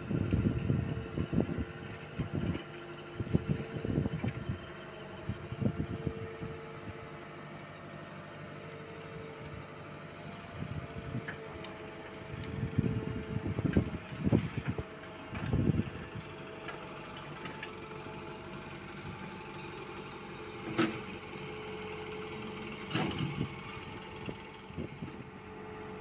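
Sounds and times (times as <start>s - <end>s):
truck engine running: 0.0s - 26.0s
low rumbles and thumps: 12.3s - 16.0s.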